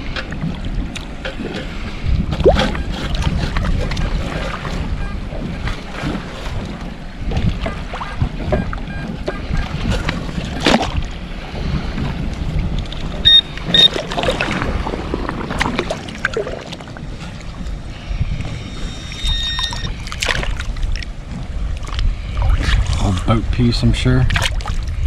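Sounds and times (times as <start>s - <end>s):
water sloshing while wading: 0.0s - 25.0s
wind: 0.0s - 25.0s
metal detector beeps: 8.6s - 9.7s, 13.2s - 14.0s, 18.5s - 20.0s.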